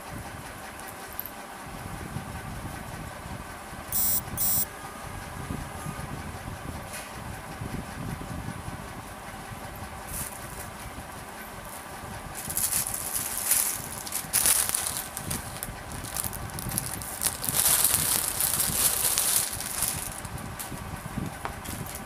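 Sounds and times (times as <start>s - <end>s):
clothes rustling: 12.4s - 20.7s.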